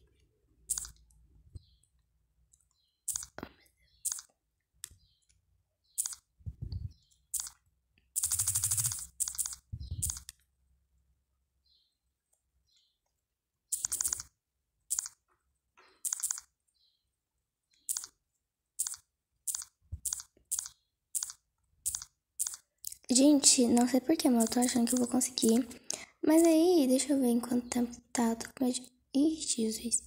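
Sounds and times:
fingertip taps on touchscreen: 0:09.7 - 0:10.4.

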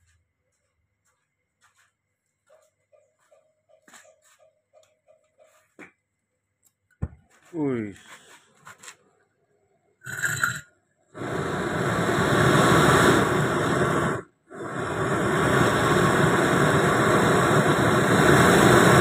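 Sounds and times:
gas burner roaring: 0:10.1 - 0:10.6, 0:11.2 - 0:19.0.

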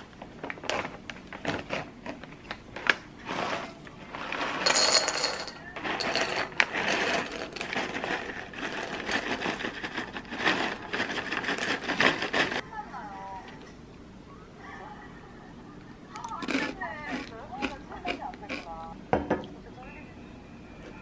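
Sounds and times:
snack sticks rattling into bowl: 0:04.2 - 0:12.6, 0:16.2 - 0:18.6.

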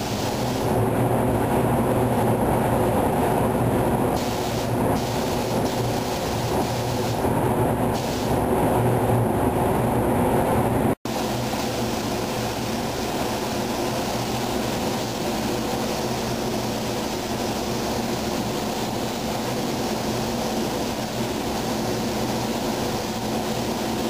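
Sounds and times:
paint spray gun rushing air: 0:00.0 - 0:00.9, 0:04.1 - 0:07.3, 0:07.9 - 0:08.5, 0:11.1 - 0:24.0
paint booth airflow: 0:00.0 - 0:24.0.

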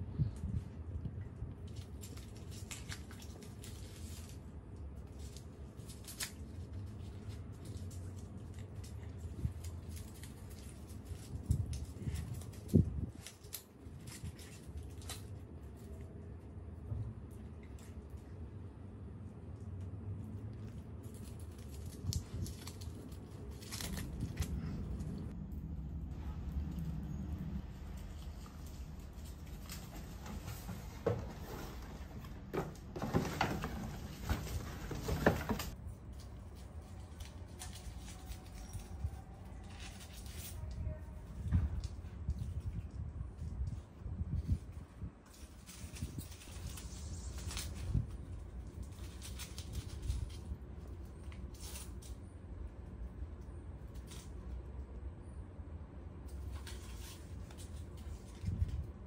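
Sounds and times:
paper crinkling: 0:20.9 - 0:25.3.

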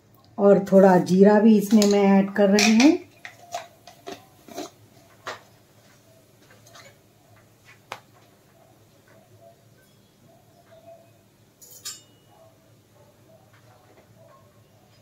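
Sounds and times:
seeds crackling and popping: 0:01.5 - 0:05.5.

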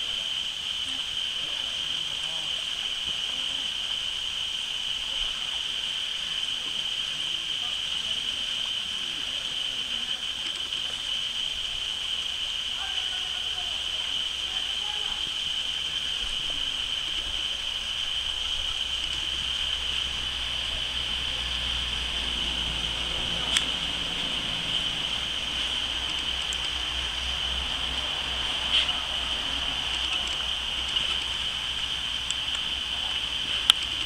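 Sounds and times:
high-pitched hiss: 0:00.0 - 0:34.0
faint clicks: 0:23.4 - 0:23.8, 0:25.7 - 0:26.9, 0:29.8 - 0:32.7, 0:33.6 - 0:34.0.

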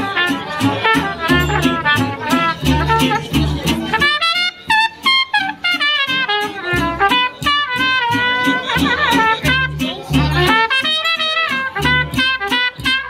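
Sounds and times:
steady drum beat: 0:00.0 - 0:05.2, 0:05.8 - 0:13.0
plucked double bass: 0:00.0 - 0:13.0
trumpet melody: 0:00.0 - 0:13.0.

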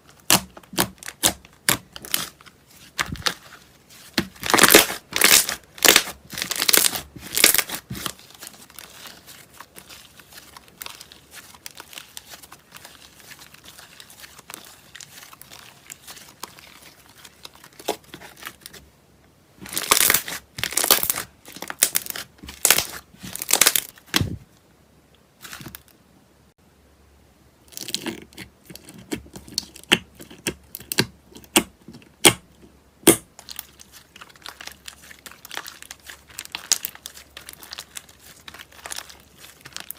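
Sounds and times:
crunchy slime crackling: 0:00.0 - 0:18.8, 0:19.6 - 0:24.4, 0:33.0 - 0:39.9.

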